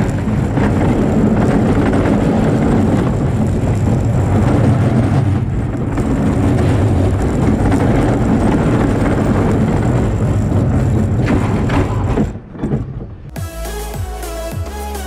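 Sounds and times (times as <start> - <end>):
roller coaster rumbling on rails: 0.0 - 13.4
music: 13.4 - 15.0.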